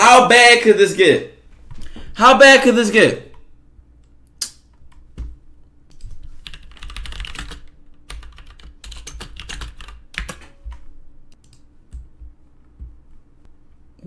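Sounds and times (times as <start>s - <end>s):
computer keyboard typing: 4.8s - 13.0s.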